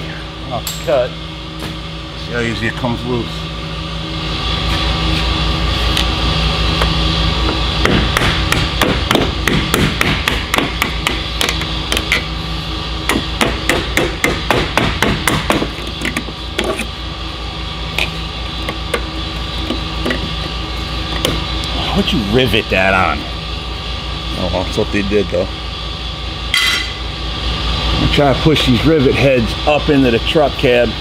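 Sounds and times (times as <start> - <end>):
steady hum: 0.0 - 31.0
hammer striking metal: 26.5 - 27.0.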